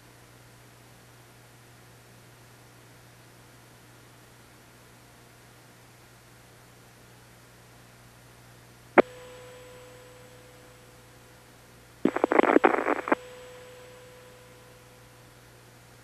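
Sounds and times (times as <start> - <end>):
steady low hum: 8.6 - 16.0.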